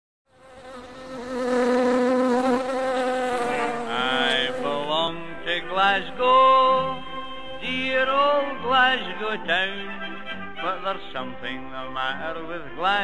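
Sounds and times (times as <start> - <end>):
bee-like buzzing drone: 0.3 - 7.5.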